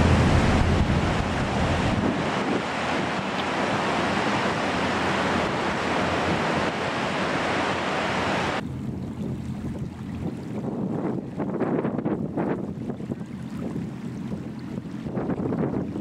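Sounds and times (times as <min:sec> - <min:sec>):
surf: 0:00.0 - 0:08.6
wind noise on microphone: 0:00.0 - 0:16.0.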